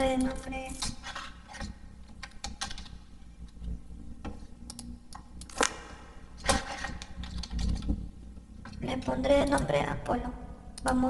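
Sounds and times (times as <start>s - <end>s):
keyboard and mouse clicks: 0.0s - 8.0s
low steady hum: 0.0s - 11.0s.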